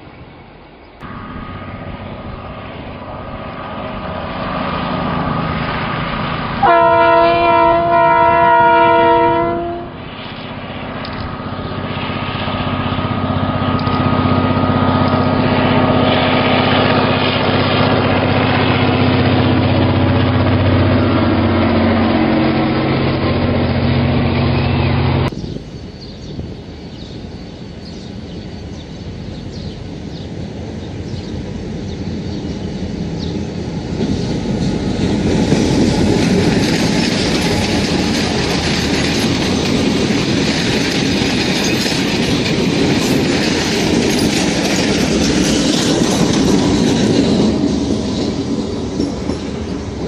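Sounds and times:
diesel locomotive engine: 0.0 - 50.0
train rolling past: 0.0 - 50.0
train horn blast: 6.6 - 10.0.

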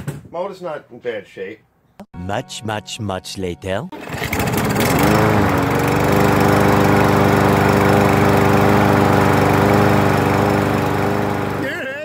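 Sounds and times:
lawn mower engine running: 4.0 - 11.7.

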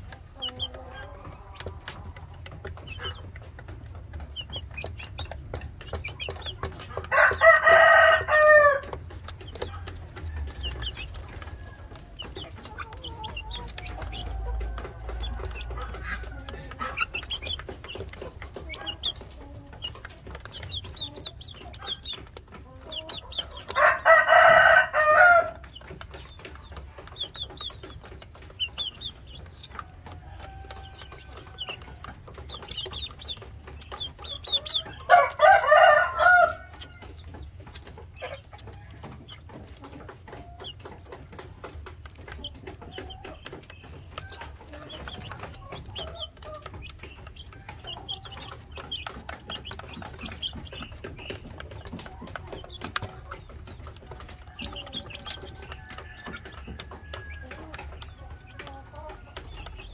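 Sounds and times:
chickens clucking: 0.0 - 59.9
young chickens high calls: 0.0 - 59.9
rooster crowing: 7.1 - 8.9, 23.7 - 25.6, 30.2 - 31.7, 35.0 - 36.8.

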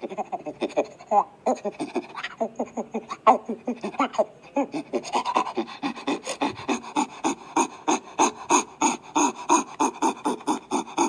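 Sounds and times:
chimpanzee panting calls: 0.0 - 11.0.

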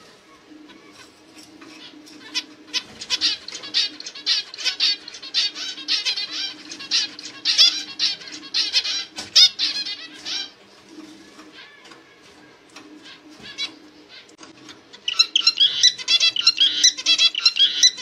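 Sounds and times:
zebra finch chirping: 0.7 - 10.6, 14.9 - 18.0.

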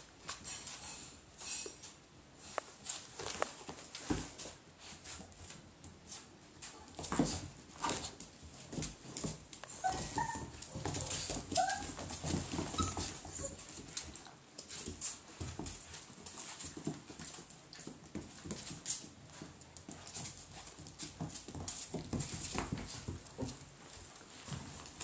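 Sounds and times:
claws scrabbling on hard floor: 2.5 - 25.0
puppies whimpering: 9.7 - 10.6, 11.3 - 12.0, 12.6 - 13.7.

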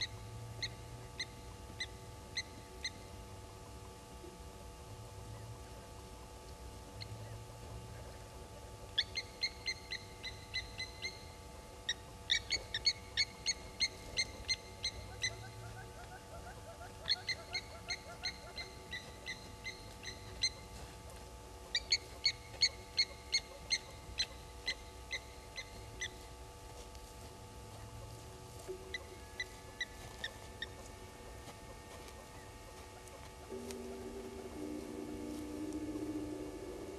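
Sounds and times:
lapwings metallic alarm calls: 11.9 - 20.7.

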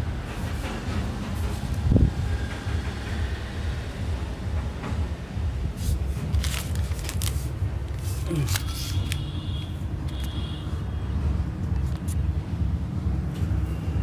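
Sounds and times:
steady low rumble: 0.0 - 10.1
plastic packet crinkling: 6.3 - 9.2.

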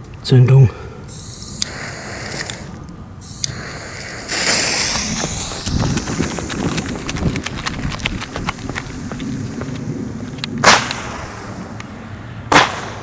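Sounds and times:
firework fuse hissing: 1.1 - 11.8
sharp clicks and low thumps: 3.2 - 11.2.

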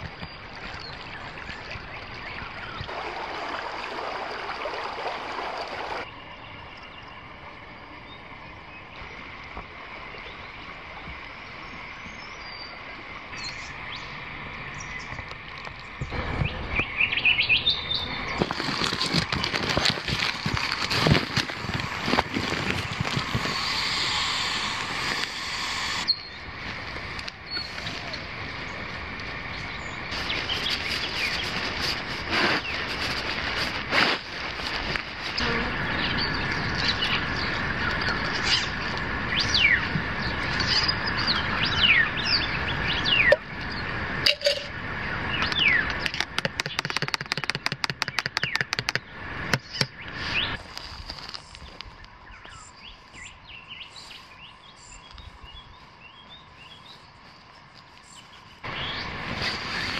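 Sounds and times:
birds chirping: 11.7 - 31.8, 35.4 - 50.6, 51.3 - 59.9
camping gear rustling: 18.3 - 29.4, 30.1 - 35.4, 44.3 - 44.7, 49.6 - 53.3, 54.0 - 59.9.

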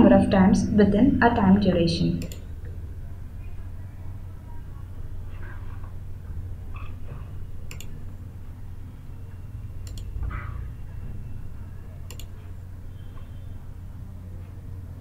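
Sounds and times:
steady low hum: 0.0 - 15.0
computer mouse clicks: 7.6 - 8.0, 9.8 - 10.1, 12.1 - 12.4.

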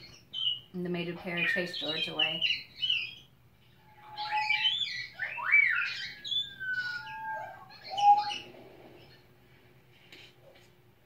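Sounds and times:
parrots squawking and whistling: 1.4 - 9.2.

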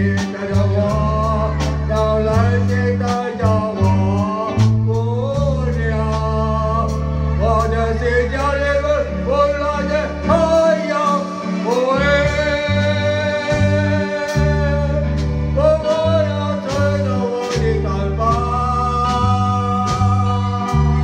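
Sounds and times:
bass line: 0.0 - 21.0
person singing long held notes: 0.0 - 21.0
drum beat: 15.8 - 21.0.

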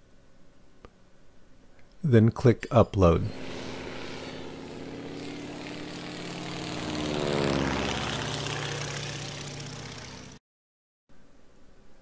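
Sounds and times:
propeller plane flying by: 3.3 - 10.4.

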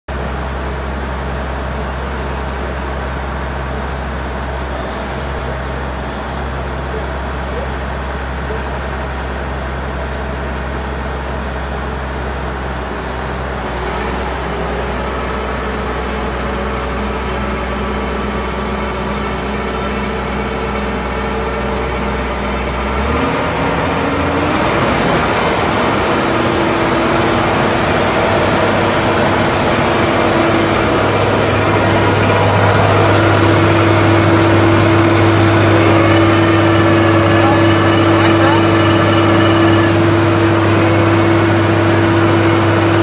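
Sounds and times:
drilling rig diesel engine hum: 0.1 - 43.0
tone gliding upward: 23.3 - 43.0
thin high whine: 25.0 - 43.0.

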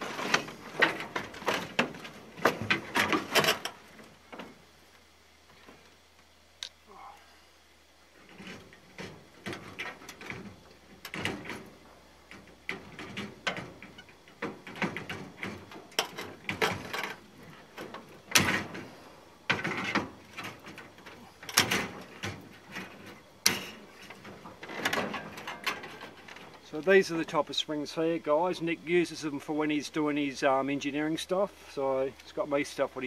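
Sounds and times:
metallic clicks and clanks of bed springs: 0.0 - 3.8, 8.2 - 27.0.

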